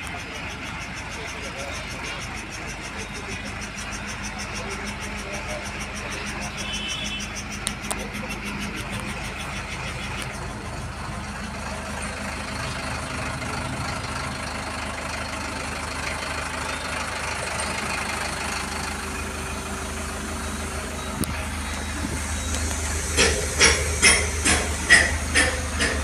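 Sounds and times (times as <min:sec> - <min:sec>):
diesel engine idling: 0:00.0 - 0:26.0
sharp click: 0:22.5 - 0:26.0.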